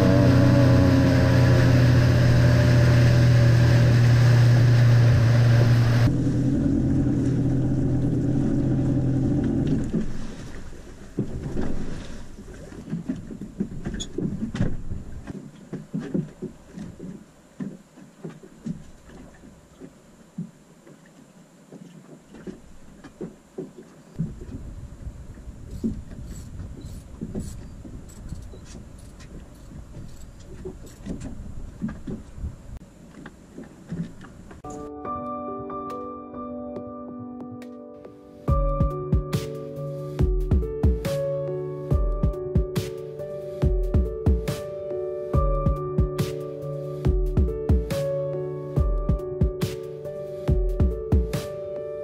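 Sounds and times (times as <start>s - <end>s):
small boat engine: 0.0s - 34.7s
water lapping against hull: 0.0s - 34.7s.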